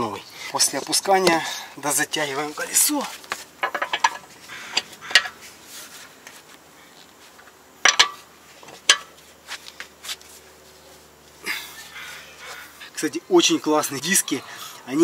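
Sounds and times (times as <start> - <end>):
wheel wrench clinking on bolts: 3.6 - 5.4, 7.8 - 8.2.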